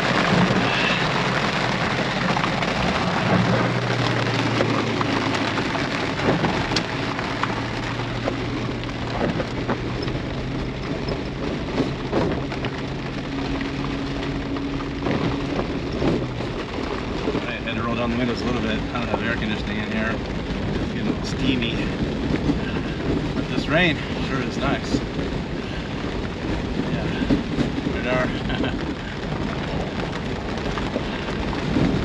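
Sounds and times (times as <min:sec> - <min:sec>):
engine humming: 0:00.0 - 0:32.0
rain on a vehicle: 0:00.0 - 0:32.0.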